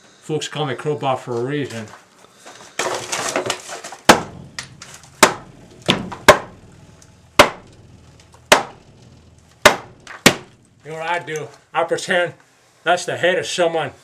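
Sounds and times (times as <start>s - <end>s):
rough scraping: 2.5s - 11.8s
crowbar smashing drywall: 2.8s - 11.2s.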